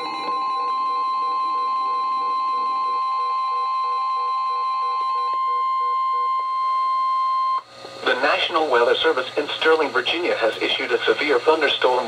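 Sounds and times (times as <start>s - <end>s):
pulsing receiver beeps: 0.0s - 7.6s
steady warning alarm tone: 0.0s - 7.7s.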